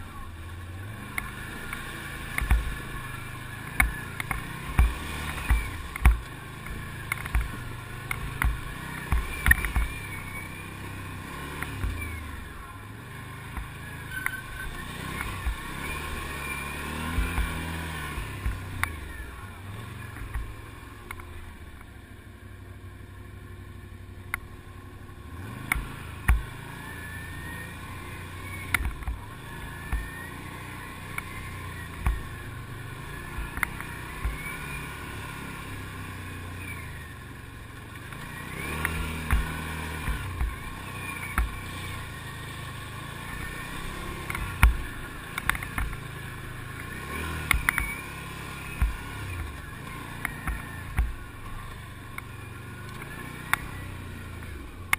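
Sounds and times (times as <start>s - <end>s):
atv engine revving: 0.0s - 54.9s
knocks and rattles over bumps: 3.7s - 10.1s.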